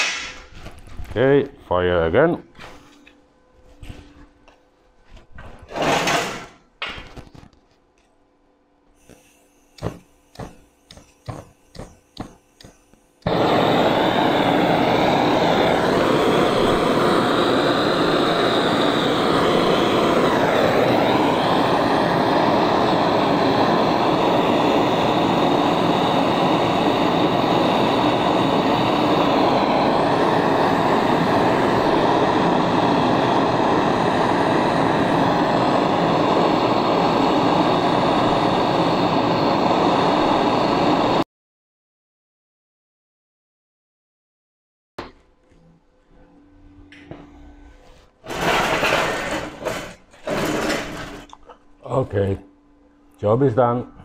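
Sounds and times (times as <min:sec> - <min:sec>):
gas torch flame rushing: 0:00.0 - 0:01.2, 0:05.6 - 0:07.2, 0:09.0 - 0:41.2, 0:48.2 - 0:51.4.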